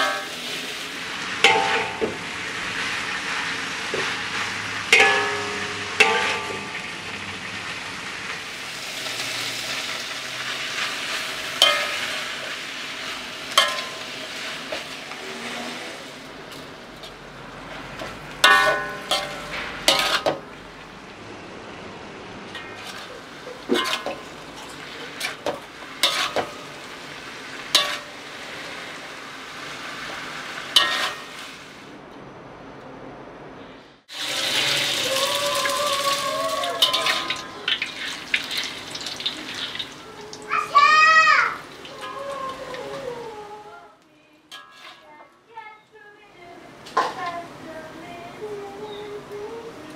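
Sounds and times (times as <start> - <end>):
metal spatula scraping a wok: 0.0 - 7.8, 8.6 - 20.6, 22.5 - 31.9, 36.8 - 40.0, 44.5 - 45.3
vegetables sizzling in a wok: 0.0 - 32.0, 33.8 - 49.9.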